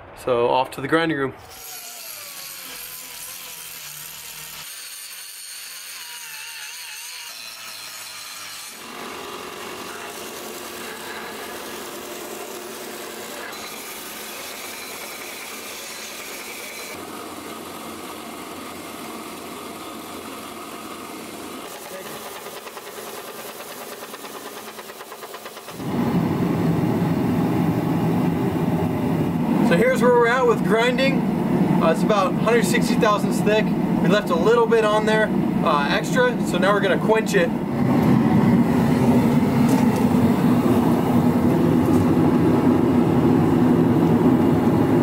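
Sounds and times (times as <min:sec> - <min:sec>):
angle grinder grinding steel: 0:01.4 - 0:25.8
belt grinder grinding: 0:01.4 - 0:25.8.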